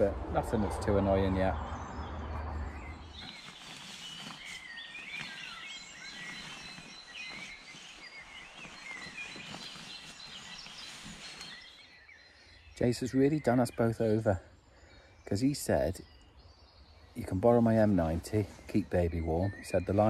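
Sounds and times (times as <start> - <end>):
songbirds chirping and warbling: 0.0 - 20.0.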